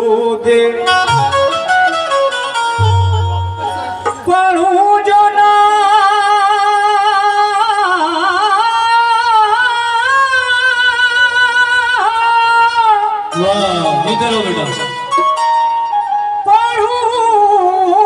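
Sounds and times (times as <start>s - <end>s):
man singing long note: 0.9s - 1.6s, 2.8s - 4.1s
harmonium drone: 0.9s - 5.0s.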